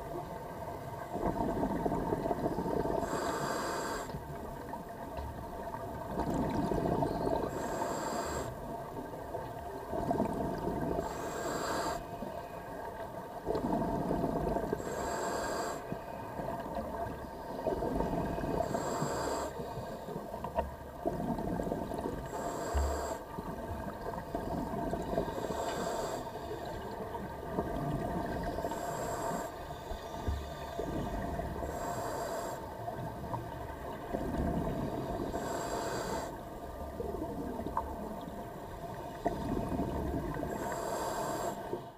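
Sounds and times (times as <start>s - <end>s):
faint hum: 0.0s - 41.9s
regulator inhale hiss: 2.9s - 4.2s, 7.4s - 8.6s, 11.0s - 12.4s, 14.2s - 16.3s, 18.5s - 20.2s, 22.2s - 23.4s, 25.2s - 26.9s, 28.5s - 32.8s, 35.1s - 36.5s, 40.4s - 41.9s.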